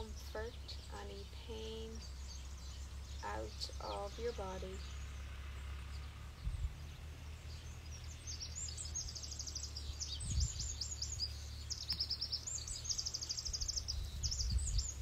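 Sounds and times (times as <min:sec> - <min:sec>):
songbird trilling and chirping: 0:00.0 - 0:05.2, 0:05.9 - 0:15.0
low rumble: 0:00.0 - 0:11.7.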